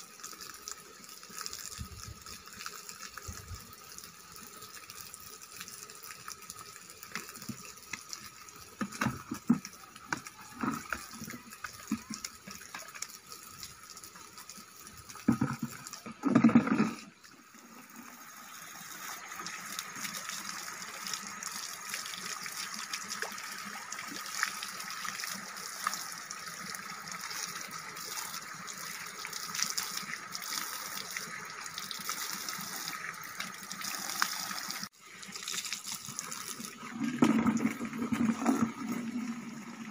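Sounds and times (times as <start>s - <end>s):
water running and splashing on hands: 17.8s - 39.0s.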